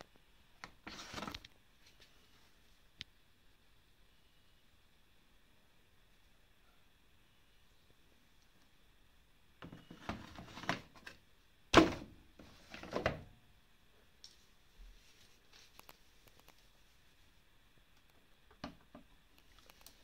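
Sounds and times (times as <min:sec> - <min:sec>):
plastic drawer scraping and rattling: 0:09.6 - 0:11.1
faint clicks: 0:19.3 - 0:20.0.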